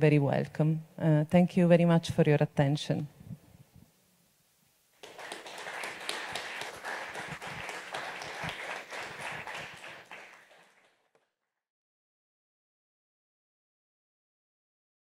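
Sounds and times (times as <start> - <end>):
audience applauding: 5.0 - 11.3.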